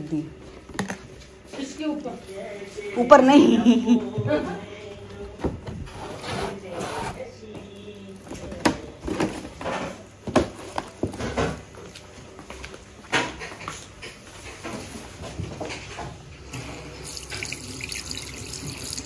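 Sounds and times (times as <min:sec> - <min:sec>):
household things knocking and rustling: 0:08.2 - 0:11.9.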